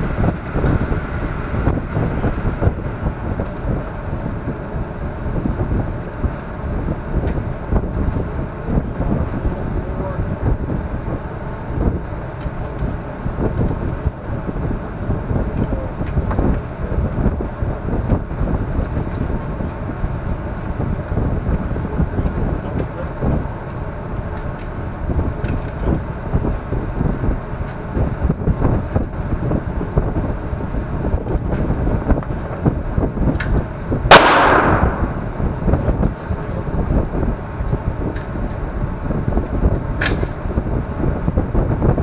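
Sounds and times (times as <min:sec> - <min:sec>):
steady low rumble: 0:00.0 - 0:42.0
loud gunshot echoing indoors: 0:34.1 - 0:35.6.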